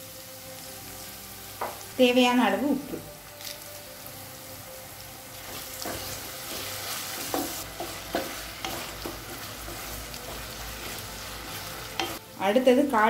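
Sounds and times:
vegetables sizzling in oil: 0.0s - 13.0s
spatula knocking pan: 5.8s - 10.6s.

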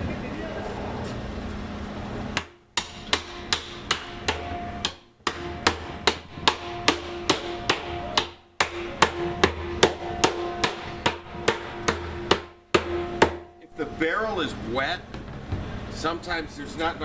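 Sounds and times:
hammer striking metal hoop: 2.4s - 13.9s.

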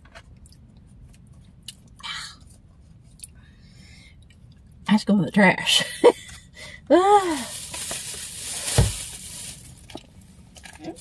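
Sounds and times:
packaging crinkling: 7.3s - 10.0s.

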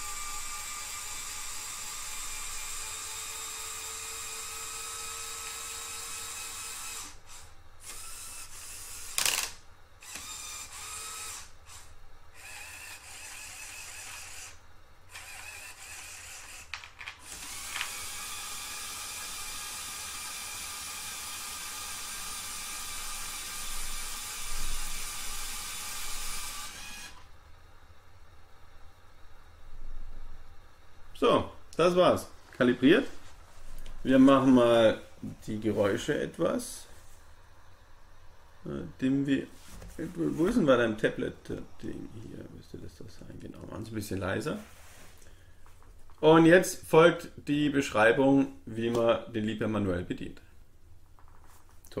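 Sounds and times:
electric motors whirring: 0.0s - 27.3s.

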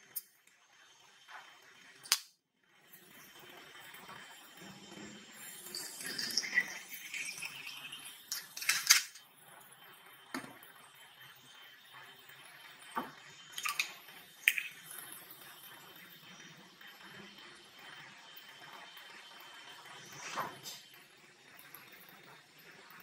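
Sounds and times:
soda poured into a glass: 2.7s - 23.0s
glass and bowl clinking: 5.4s - 9.2s.

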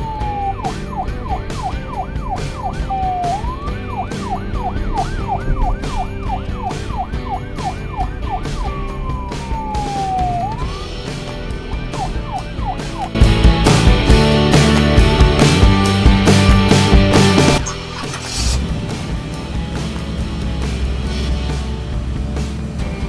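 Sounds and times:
siren yelping: 0.0s - 11.0s, 11.7s - 13.2s, 17.5s - 18.5s
siren wailing: 0.0s - 11.1s, 11.7s - 13.2s
music with steady beat: 0.0s - 23.0s.

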